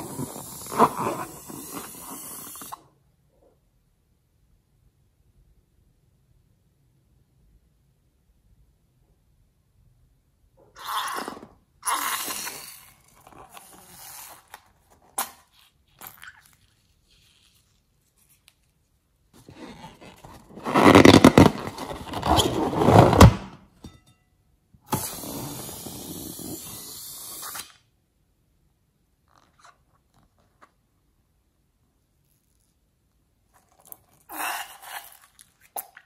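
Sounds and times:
hissing squirt of slime: 0:00.0 - 0:02.8, 0:24.9 - 0:27.8
rubber balloon rubbed in hand: 0:00.0 - 0:02.8, 0:16.6 - 0:18.7, 0:19.4 - 0:23.4, 0:25.0 - 0:27.6
slime squelching: 0:10.8 - 0:18.8, 0:33.4 - 0:36.0.

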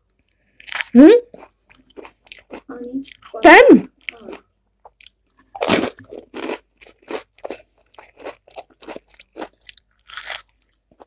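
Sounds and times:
crisp shell crunching in mouth: 0:04.9 - 0:11.0.

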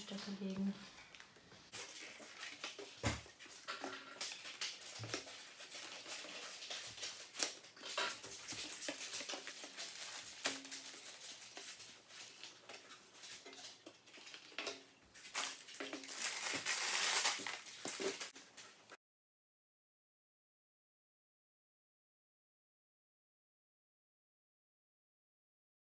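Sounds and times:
paper and plastic rustling: 0:00.0 - 0:19.0.

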